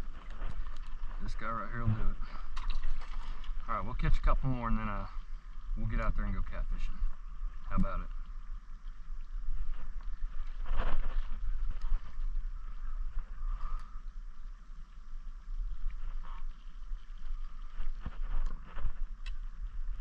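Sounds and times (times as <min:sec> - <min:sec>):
lakeside ambience: 0:00.0 - 0:20.0
wind rumbling on microphone: 0:00.0 - 0:20.0
faint clicks: 0:11.6 - 0:15.0, 0:15.7 - 0:20.0.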